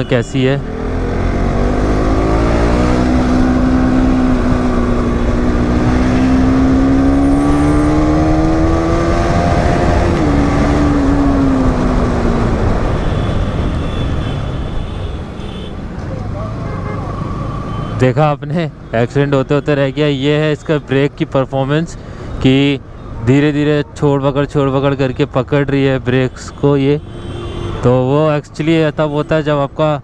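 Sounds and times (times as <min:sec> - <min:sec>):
motorcycle engine revving: 0:00.5 - 0:14.2
low wind rush: 0:00.6 - 0:14.9.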